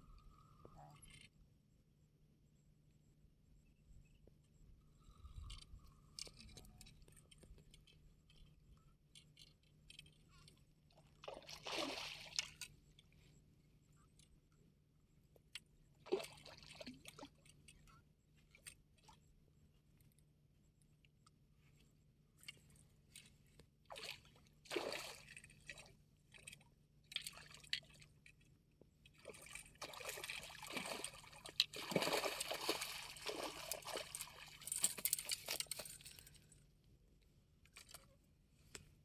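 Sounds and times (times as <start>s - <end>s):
fish splashing in shallow water: 11.1s - 12.7s, 23.9s - 26.6s, 29.1s - 35.8s.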